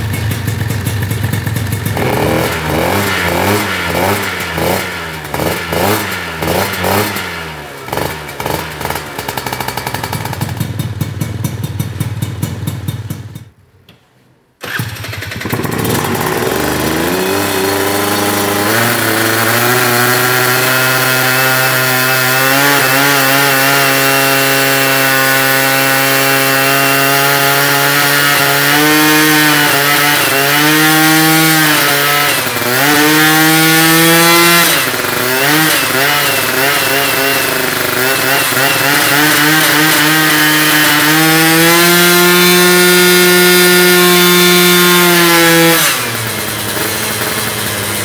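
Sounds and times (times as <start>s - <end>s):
scooter engine revving: 0.0s - 13.4s, 14.6s - 48.0s.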